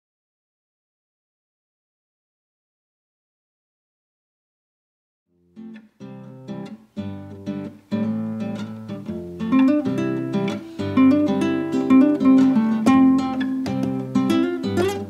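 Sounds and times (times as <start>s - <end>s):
acoustic guitar strumming: 5.4s - 15.0s.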